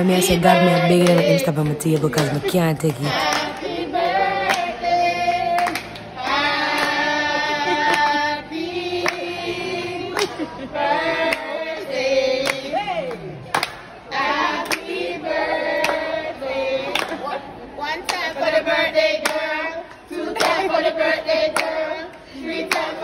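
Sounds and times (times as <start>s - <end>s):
group singing long held notes: 0.0s - 23.0s
sharp hand claps: 5.5s - 6.1s, 13.5s - 13.9s.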